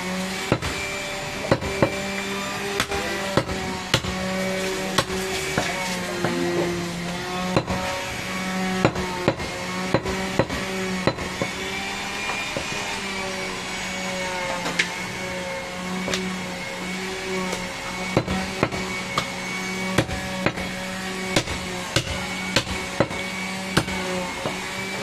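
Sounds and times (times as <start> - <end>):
knife chopping meat on wooden block: 2.8 - 4.2, 4.9 - 6.7, 21.3 - 23.2.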